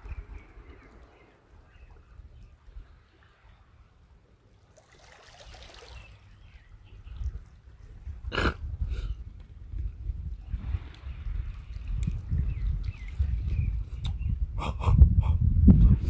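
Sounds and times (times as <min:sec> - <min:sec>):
waves lapping on pebbles: 0:04.6 - 0:06.3.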